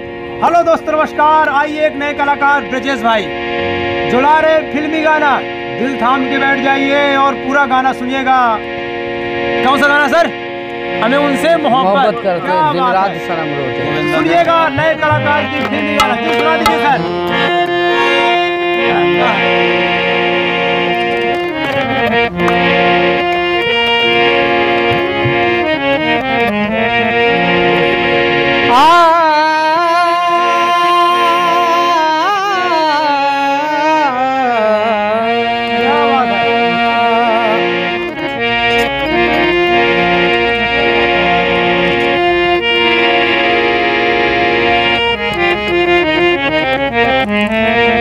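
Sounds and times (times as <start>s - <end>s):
harmonium playing chords: 0.0s - 48.0s
man singing: 28.7s - 37.8s.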